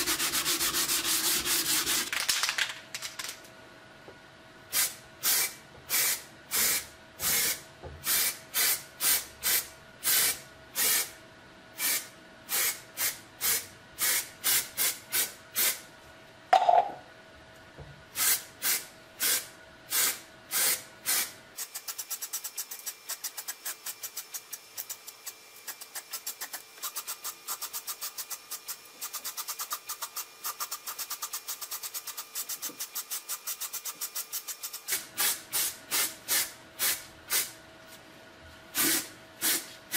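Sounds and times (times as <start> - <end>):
spray can hissing: 38.8 - 39.7.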